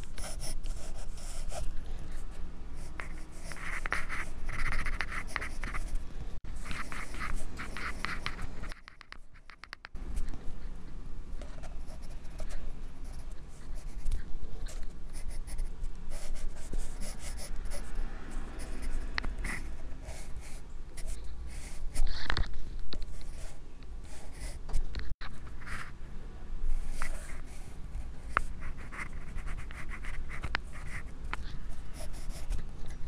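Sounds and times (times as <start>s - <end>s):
pencil scratching on paper: 0.1s - 1.7s, 2.9s - 5.9s, 6.6s - 9.7s, 15.1s - 17.9s, 28.3s - 32.6s.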